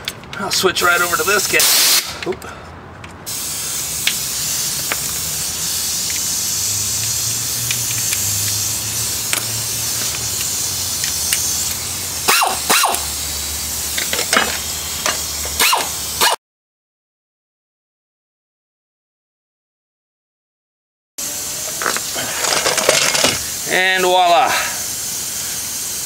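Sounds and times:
air wrench hissing: 0.4 - 2.3, 3.3 - 16.4, 21.2 - 26.0
sharp metal clicks: 7.6 - 8.6.

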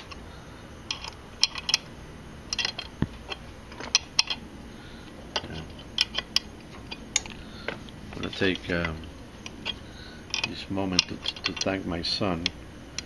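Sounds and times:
wrench clicking on metal bolt: 0.9 - 1.8, 2.5 - 4.4, 8.2 - 11.8.

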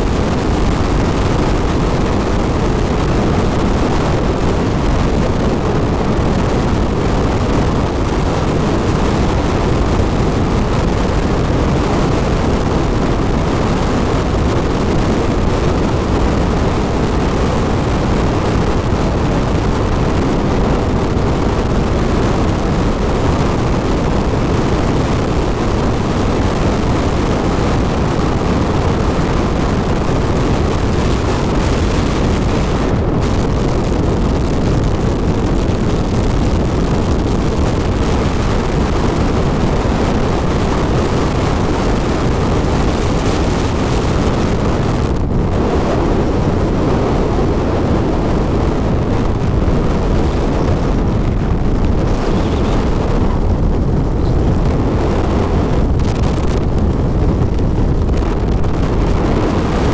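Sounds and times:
wind rushing on microphone: 0.0 - 59.9
motorcycle engine: 50.0 - 56.7.

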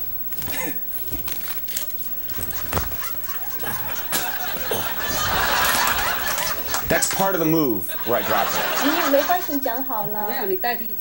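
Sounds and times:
people laughing: 2.2 - 9.9
nunchucks clacking: 3.9 - 6.0.

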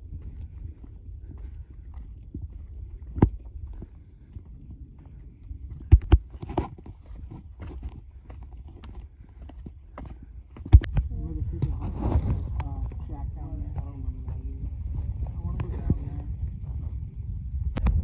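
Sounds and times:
footsteps on rock: 0.0 - 13.1
steady low rumble: 0.0 - 18.0.

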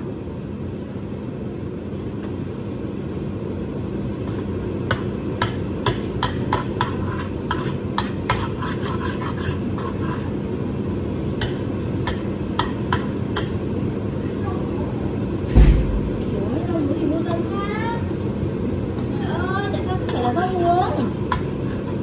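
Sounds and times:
range hood fan hum: 0.0 - 22.0
spatula scraping frying pan: 6.4 - 10.4.

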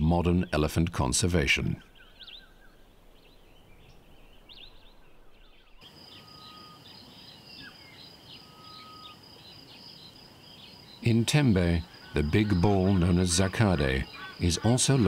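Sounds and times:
short bird chirps: 1.9 - 9.2
long bird whistles: 5.6 - 10.1
high pulsing insect trill: 5.8 - 15.0.

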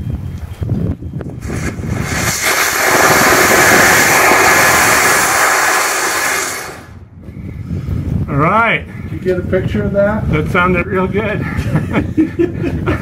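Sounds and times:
rocket motor roaring: 1.4 - 7.1.

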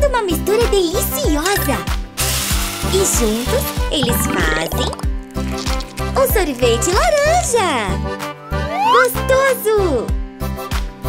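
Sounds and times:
upbeat children's song: 2.9 - 5.0.

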